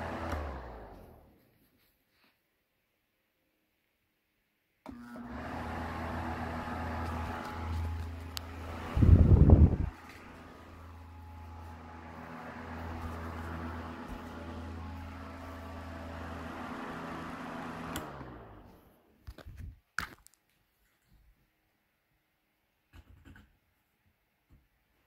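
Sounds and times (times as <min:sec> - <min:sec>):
fan motor hum: 0:00.0 - 0:01.4, 0:04.9 - 0:19.1.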